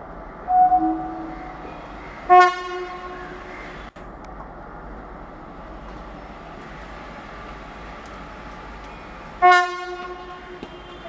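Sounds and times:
locomotives rumbling along track: 0.0s - 11.0s
locomotive horn blast: 0.5s - 1.7s, 2.3s - 3.5s, 9.4s - 11.0s.

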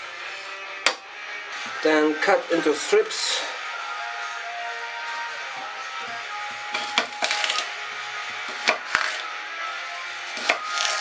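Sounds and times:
knife cutting celery: 6.8s - 7.7s, 8.5s - 9.2s, 10.3s - 11.0s.

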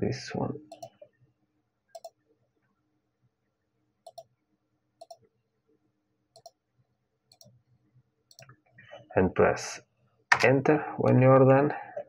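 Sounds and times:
computer mouse button clicking: 0.7s - 1.0s, 2.0s - 2.2s, 4.1s - 4.3s.

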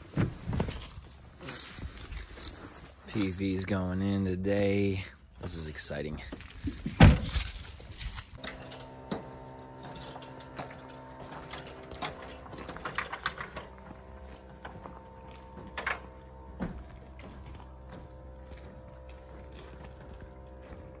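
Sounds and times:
sustained tones: 8.4s - 21.0s.

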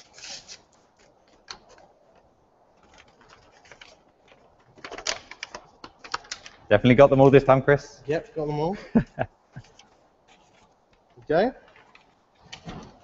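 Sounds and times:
paper rustling and crinkling: 0.0s - 6.6s, 9.6s - 13.0s.

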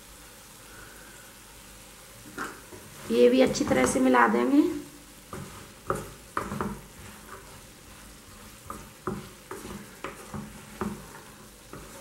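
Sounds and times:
faint sizzle: 0.0s - 12.0s
spatula scraping a pan: 5.2s - 12.0s.

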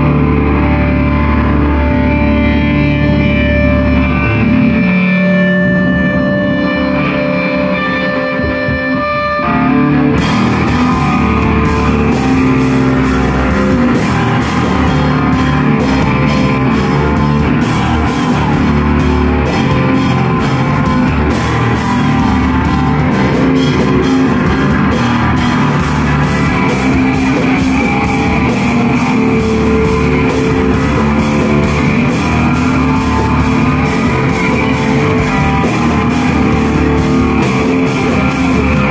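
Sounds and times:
amplified electric guitars: 0.0s - 38.9s
drum kit and cymbals: 10.2s - 38.9s.

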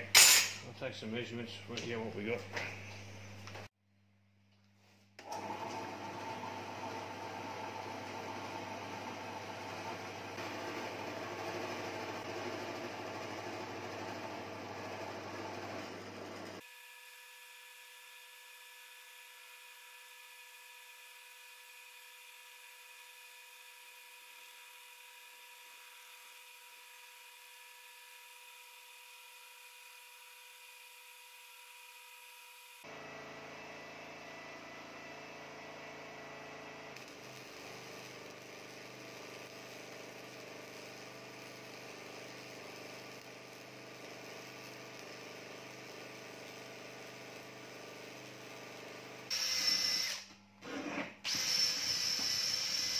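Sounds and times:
electric arc welding crackling: 37.0s - 48.3s
metal lathe whining: 45.2s - 52.9s.

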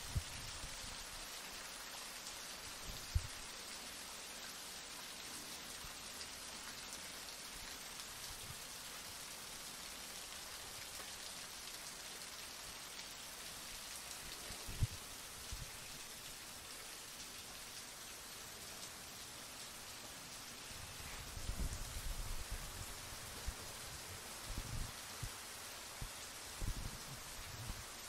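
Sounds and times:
heavy rain falling: 0.0s - 28.0s.

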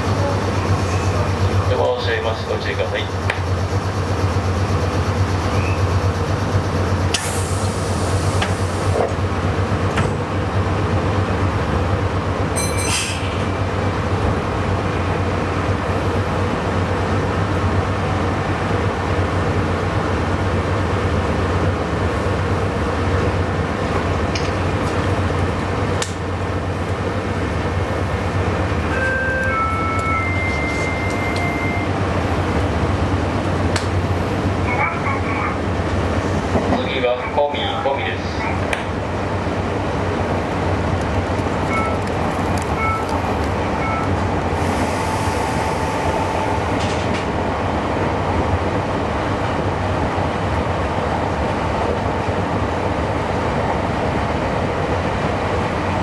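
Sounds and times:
electric train running: 25.1s - 35.4s.

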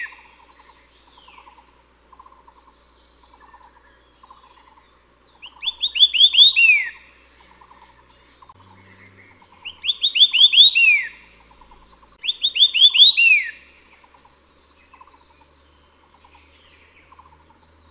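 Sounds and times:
bird whistling song: 0.0s - 1.6s, 2.9s - 14.2s
faint rapid chirring: 0.0s - 17.9s.

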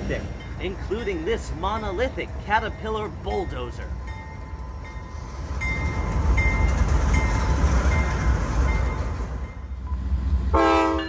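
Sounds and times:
freight train rumbling past: 0.0s - 11.0s
locomotive horn chord: 10.5s - 11.0s.

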